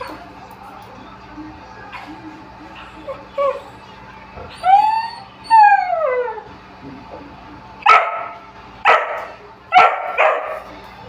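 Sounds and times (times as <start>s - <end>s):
dog whining: 2.8s - 3.8s, 4.4s - 6.5s
dog barking: 7.9s - 10.7s.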